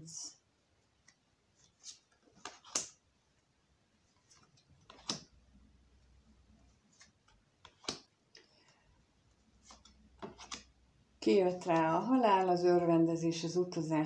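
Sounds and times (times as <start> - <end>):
cards slapping on wooden table: 1.8 - 3.0, 4.3 - 5.3, 6.9 - 8.1, 9.6 - 10.7.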